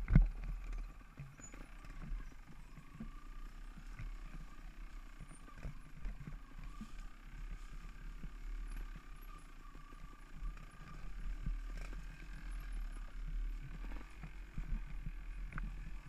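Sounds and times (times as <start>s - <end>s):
bike rumbling on rough trail: 0.0s - 16.0s
faint steady whine: 0.0s - 16.0s.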